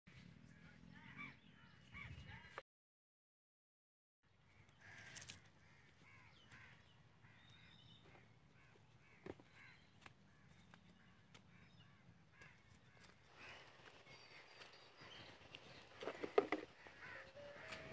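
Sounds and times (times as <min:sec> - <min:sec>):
birds calling: 0:04.4 - 0:17.9.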